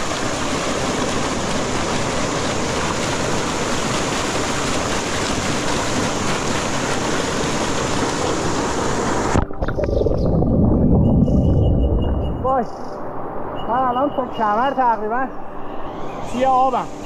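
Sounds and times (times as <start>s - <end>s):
mountain stream rushing and splashing: 0.0s - 10.7s.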